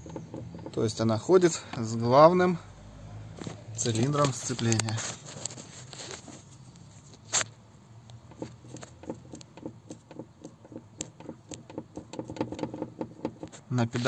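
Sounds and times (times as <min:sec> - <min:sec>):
clutch pedal clicking and knocking: 0:00.0 - 0:01.3, 0:08.2 - 0:13.7.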